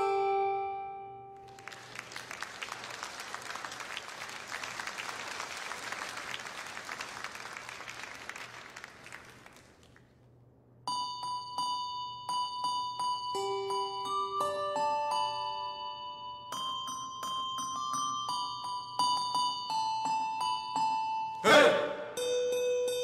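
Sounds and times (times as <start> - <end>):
bell-like chime tune: 10.9 - 21.4.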